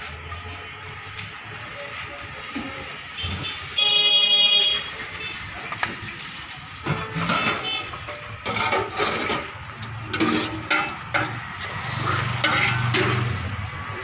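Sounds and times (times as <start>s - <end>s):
road traffic hum: 0.0s - 14.0s
ladle clinking and scraping on bowls: 6.8s - 14.0s.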